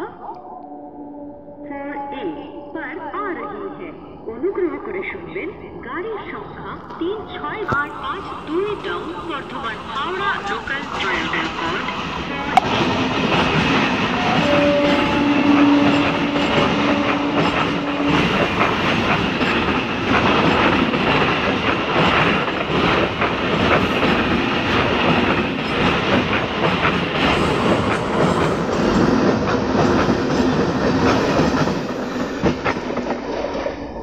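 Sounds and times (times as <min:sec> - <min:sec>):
steady tone: 0:00.0 - 0:05.3
train coaches rumbling: 0:02.0 - 0:34.0.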